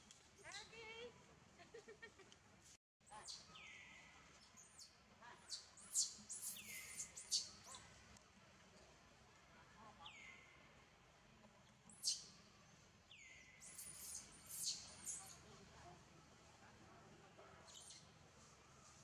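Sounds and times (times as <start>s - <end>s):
sharp high bird chirps: 13.1s - 15.4s.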